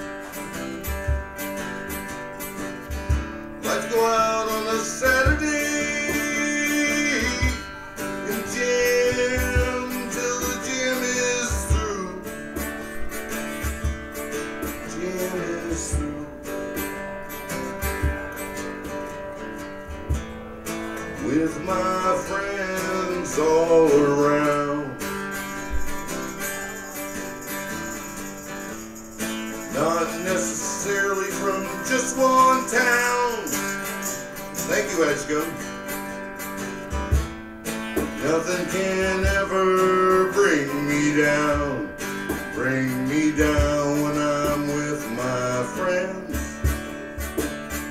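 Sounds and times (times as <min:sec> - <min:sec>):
live band with guitar: 0:00.0 - 0:47.9
low thumping beats: 0:00.5 - 0:03.6, 0:08.6 - 0:10.8, 0:11.4 - 0:21.2, 0:36.8 - 0:38.4, 0:46.4 - 0:47.9.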